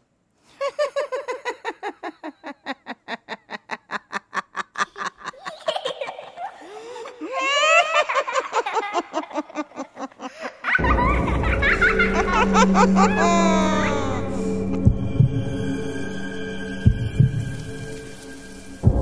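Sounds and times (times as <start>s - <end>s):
high giggling: 0.6s - 14.8s
person laughing: 0.6s - 14.9s.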